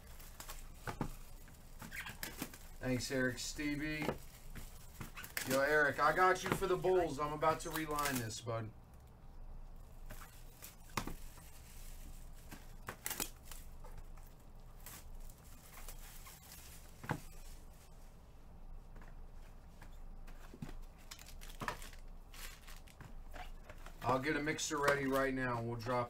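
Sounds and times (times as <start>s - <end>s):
handling clicks and rustles: 18.9s - 26.0s.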